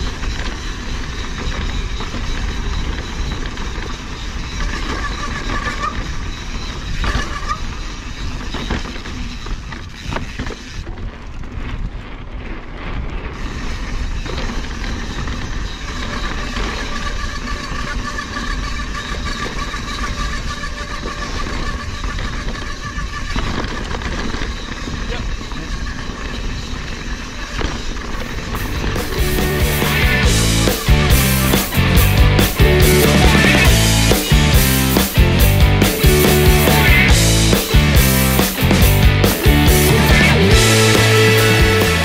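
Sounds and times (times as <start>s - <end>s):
wind on microphone: 0.0s - 31.8s
bike tyre and rattle noise: 0.0s - 42.0s.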